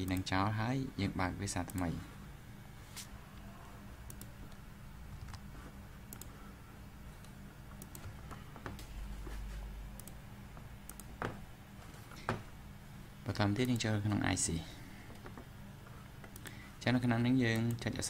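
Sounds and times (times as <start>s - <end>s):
computer mouse clicks: 0.0s - 0.3s, 1.6s - 1.9s, 4.0s - 4.6s, 5.2s - 5.5s, 6.1s - 6.4s, 7.2s - 8.9s, 9.9s - 10.2s, 10.8s - 11.4s, 16.2s - 16.6s, 17.5s - 17.9s
low electrical hum: 0.0s - 18.0s.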